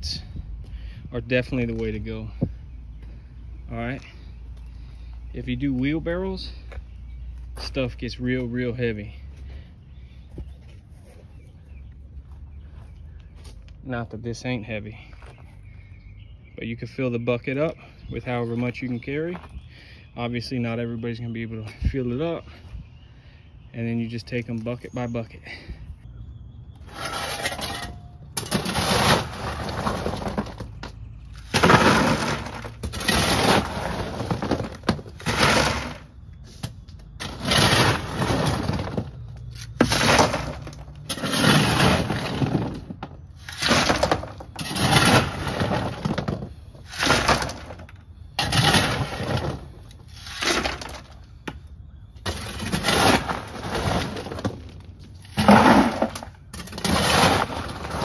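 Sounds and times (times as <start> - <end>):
shovel scraping rocks: 26.8 - 51.2, 52.2 - 58.0
rocks rattling: 26.9 - 36.2, 37.1 - 51.5, 52.2 - 58.0.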